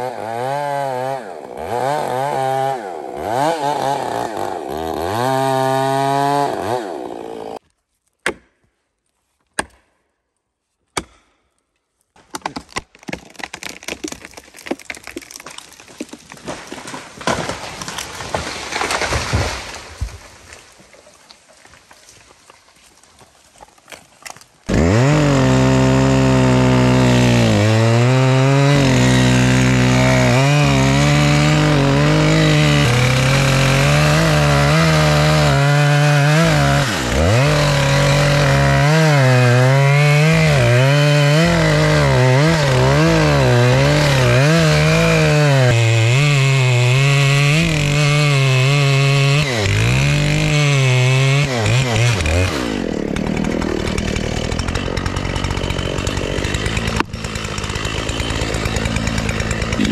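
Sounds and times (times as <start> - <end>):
chainsaw cutting tree: 0.0 - 7.6, 16.3 - 20.4, 24.3 - 59.9.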